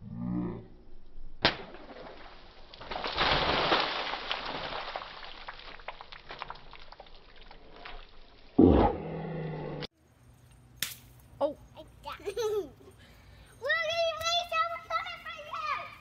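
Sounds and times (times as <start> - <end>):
water balloon bursting: 1.4 - 7.1
water splashing on concrete: 1.4 - 8.6.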